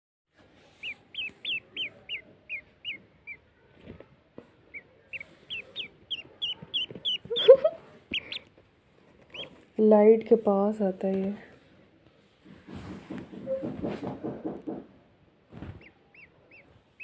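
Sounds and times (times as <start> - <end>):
duckling peeping: 0.6 - 3.5, 4.6 - 8.6, 9.2 - 9.6, 15.6 - 17.0.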